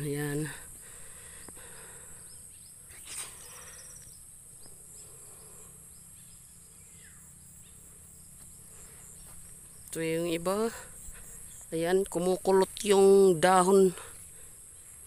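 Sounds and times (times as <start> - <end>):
insects chirring: 0.0 - 15.0
brief rustle: 2.9 - 3.6.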